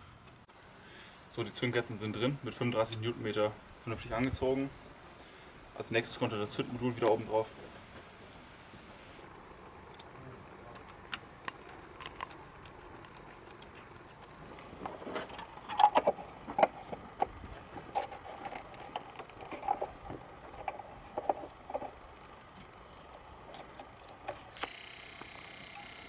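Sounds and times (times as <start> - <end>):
plastic and metal clicking: 10.7 - 22.7.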